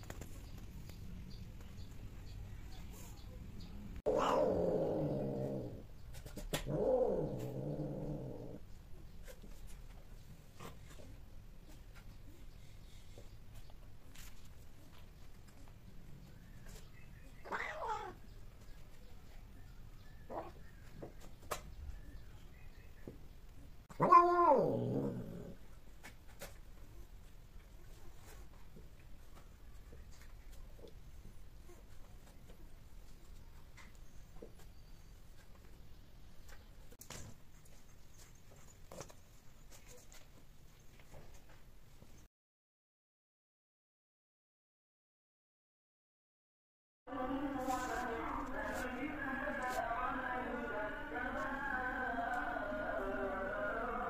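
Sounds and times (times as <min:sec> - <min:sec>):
cat yowling: 0:04.1 - 0:04.6, 0:17.4 - 0:18.2, 0:23.9 - 0:25.3.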